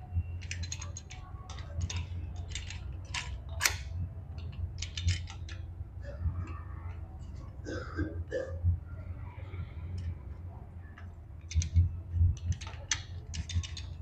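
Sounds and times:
steady low hum: 0.0s - 14.0s
metal clutch plates clinking: 0.4s - 5.7s, 11.0s - 14.0s.

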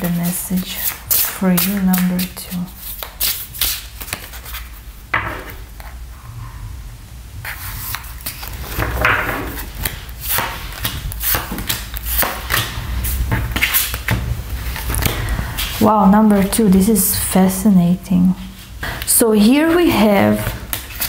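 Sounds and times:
cards being shuffled: 0.0s - 4.8s, 7.8s - 15.8s, 20.0s - 21.0s
cards dealt onto a wooden table: 0.8s - 2.4s.

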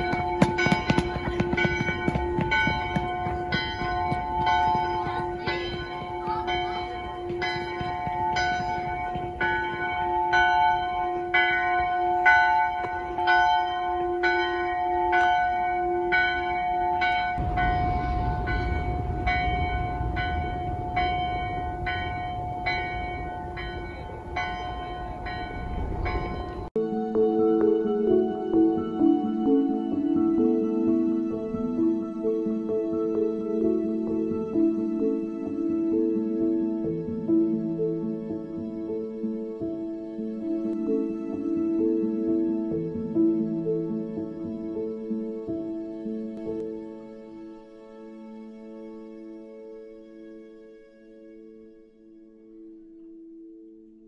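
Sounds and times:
church bells ringing: 0.0s - 26.8s
low rumble: 17.4s - 26.7s.

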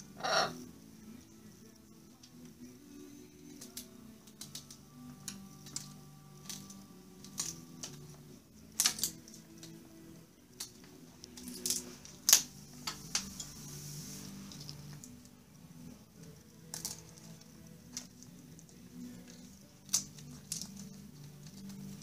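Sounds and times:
soft background music: 0.0s - 22.0s
wood cracking and snapping: 3.6s - 8.1s, 8.7s - 9.8s, 16.6s - 21.8s.

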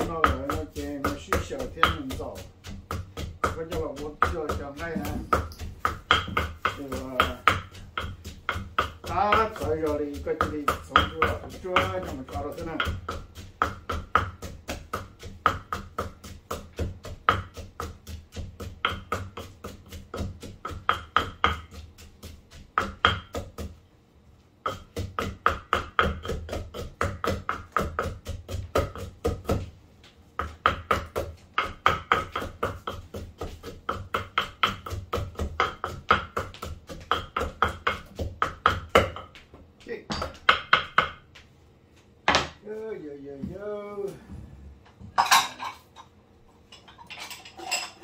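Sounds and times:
knife mincing meat on board: 0.0s - 23.8s, 24.6s - 29.7s, 30.4s - 39.4s.

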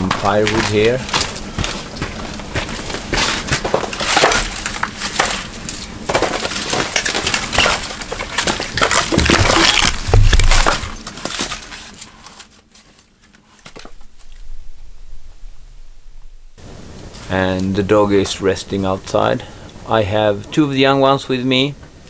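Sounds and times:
firewood logs knocking and clattering: 0.0s - 12.0s, 13.6s - 14.5s.

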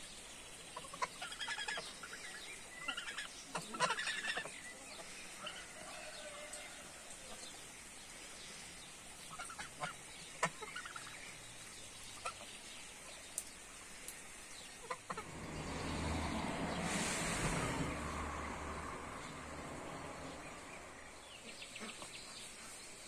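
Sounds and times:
faint steady hiss: 0.0s - 23.0s
hens clucking: 2.9s - 5.7s, 14.8s - 15.7s
rushing hiss: 13.4s - 21.6s.

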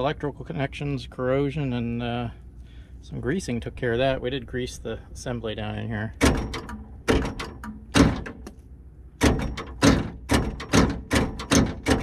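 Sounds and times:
electric door lock clunking: 6.2s - 8.4s, 9.2s - 12.0s.

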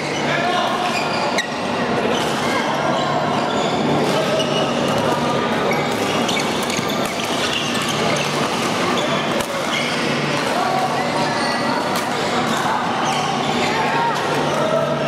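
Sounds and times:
echoing chatter: 0.0s - 15.0s
shoe squeaks on court floor: 5.7s - 10.1s.

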